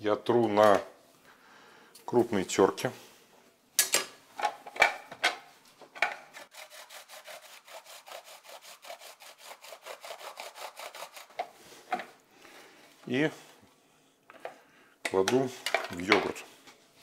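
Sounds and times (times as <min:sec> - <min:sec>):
cucumber grating on metal grater: 0:06.3 - 0:11.4.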